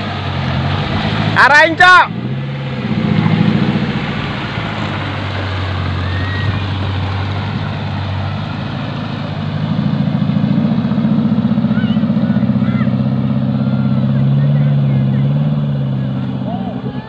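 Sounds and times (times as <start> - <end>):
vehicle engine running: 0.0 - 17.0
water churning and splashing: 0.0 - 17.0.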